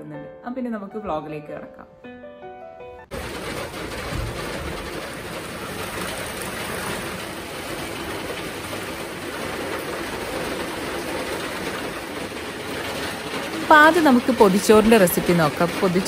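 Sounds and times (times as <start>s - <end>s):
steady rain falling: 3.1s - 16.0s.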